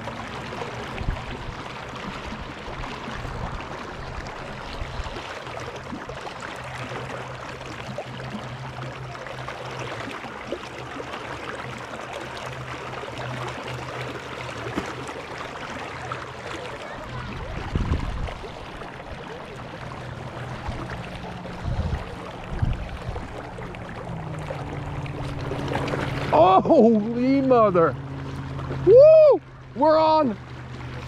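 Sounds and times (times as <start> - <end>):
river water flowing: 0.0 - 31.0
short low rumbles: 20.0 - 29.8.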